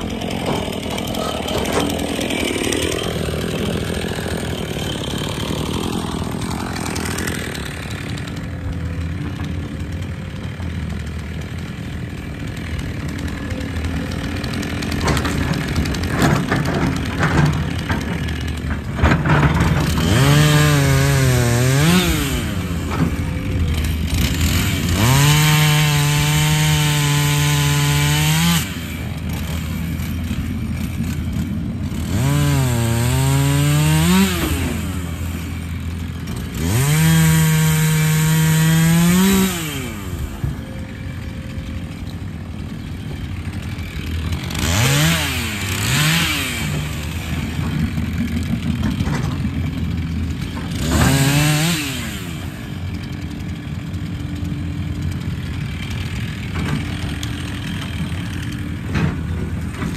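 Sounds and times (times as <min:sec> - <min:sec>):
chainsaw revving and cutting log: 0:00.0 - 0:59.9
low diesel excavator drone: 0:00.0 - 0:59.9.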